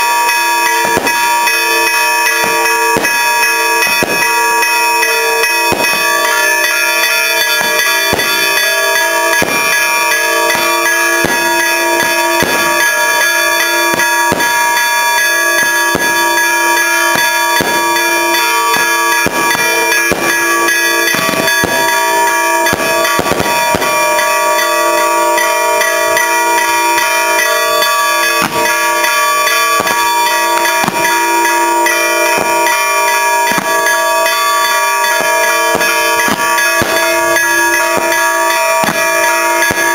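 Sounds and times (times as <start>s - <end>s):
church bells ringing: 0.0s - 39.9s
sharp cracks: 15.2s - 39.9s.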